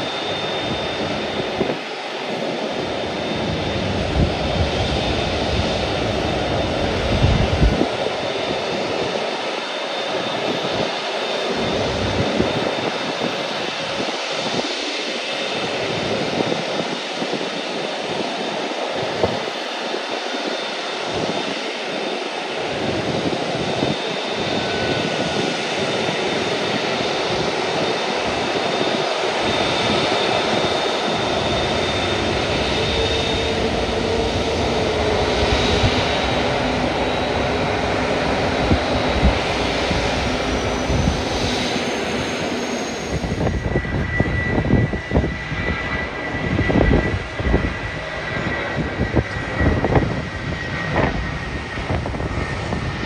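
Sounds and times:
jet engines roaring: 0:00.0 - 0:53.0
irregular low gusts: 0:22.5 - 0:53.0.

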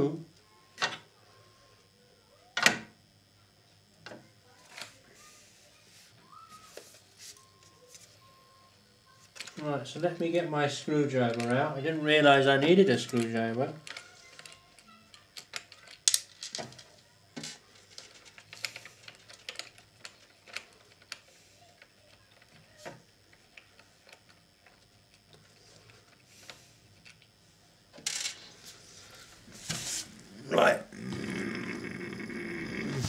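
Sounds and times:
small parts clicking and tapping: 0:13.0 - 0:27.3.

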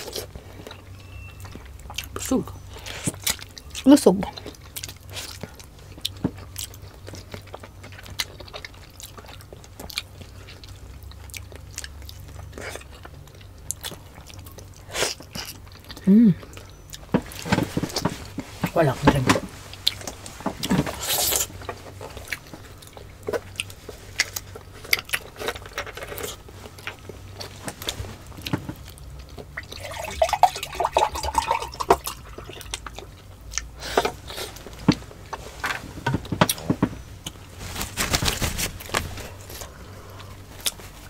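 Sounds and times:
swallowing juice: 0:29.5 - 0:32.7.

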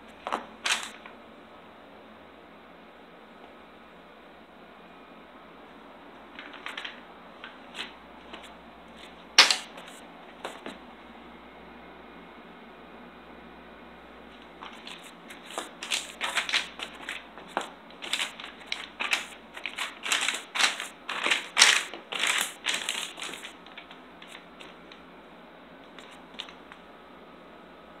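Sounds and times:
crinkling and rustling: 0:00.1 - 0:01.1, 0:06.3 - 0:10.8, 0:14.4 - 0:25.0, 0:25.9 - 0:26.8.

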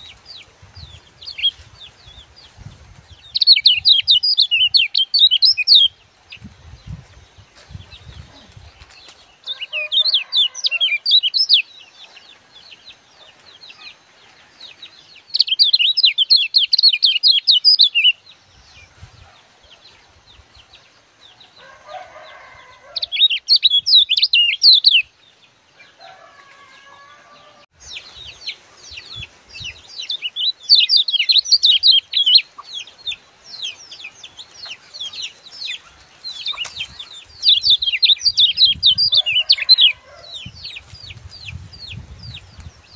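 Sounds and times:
bird singing high chattering notes: 0:03.2 - 0:06.0, 0:15.4 - 0:18.2, 0:23.0 - 0:25.0, 0:36.5 - 0:39.9.

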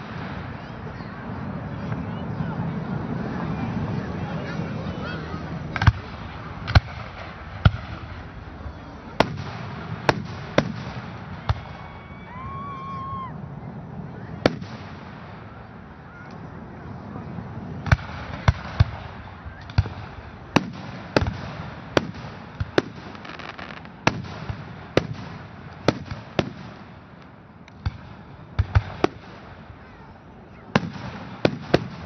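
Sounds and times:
firework shells bursting: 0:17.8 - 0:29.6.

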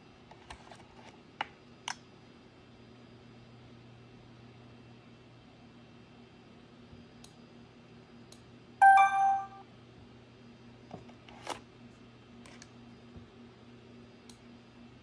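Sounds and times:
card terminal electronic beep: 0:08.8 - 0:09.6.

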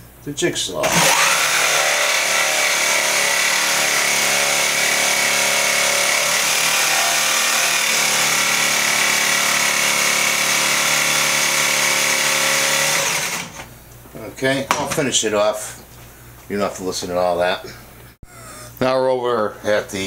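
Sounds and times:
jigsaw cutting wood: 0:00.8 - 0:13.7.

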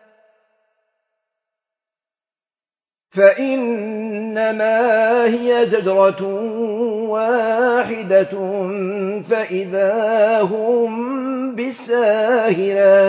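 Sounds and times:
man chanting recitation: 0:03.2 - 0:13.0.

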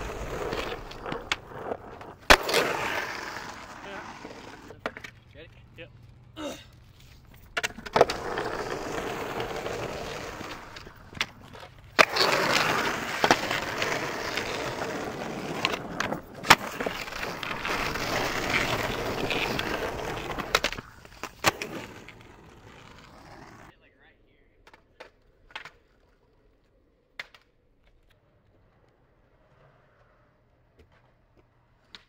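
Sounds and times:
sharp skateboard clacks: 0:00.0 - 0:05.3, 0:07.3 - 0:23.7, 0:24.6 - 0:26.1, 0:27.1 - 0:29.0
skateboard wheels rolling on pavement: 0:00.0 - 0:23.8, 0:24.5 - 0:32.0.

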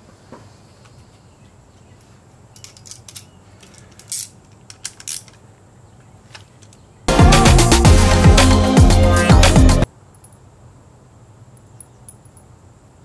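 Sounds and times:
hand tool clicking on bolts: 0:02.6 - 0:05.4.

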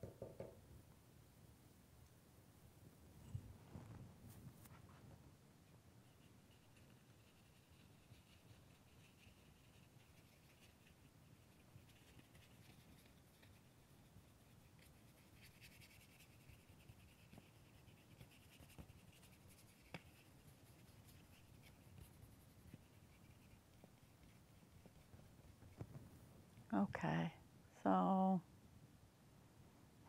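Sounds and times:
paintbrush scratching on paper: 0:06.0 - 0:25.9.

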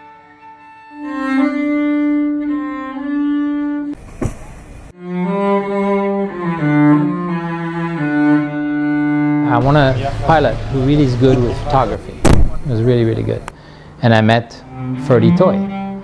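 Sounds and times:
cello playing slowly: 0:00.0 - 0:04.0, 0:04.9 - 0:12.1, 0:14.0 - 0:16.0
noise: 0:04.0 - 0:04.9.

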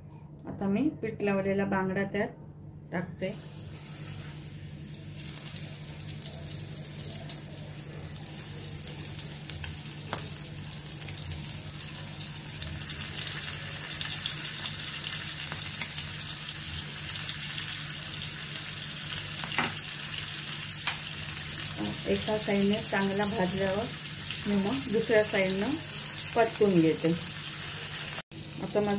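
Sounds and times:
steady low hum: 0:00.0 - 0:13.2
fish sizzling in hot oil: 0:03.4 - 0:28.9.

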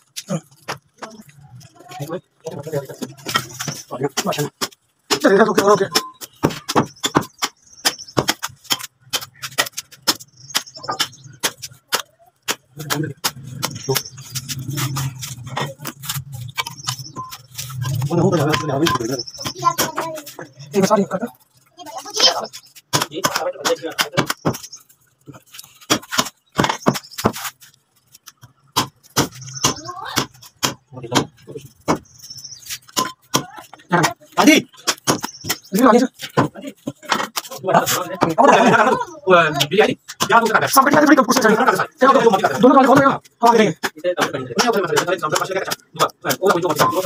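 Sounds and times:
faint bird twittering: 0:05.7 - 0:08.5, 0:09.3 - 0:12.3, 0:13.4 - 0:20.8, 0:26.4 - 0:27.5, 0:28.6 - 0:30.6, 0:31.3 - 0:33.3, 0:34.7 - 0:36.2.

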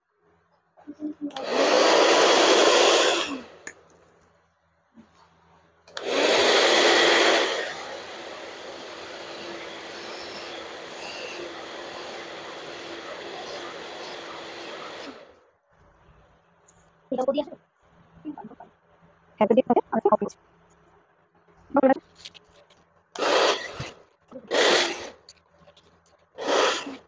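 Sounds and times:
hair dryer blowing: 0:01.3 - 0:03.7, 0:05.9 - 0:15.4, 0:23.2 - 0:25.2, 0:26.4 - 0:27.0.

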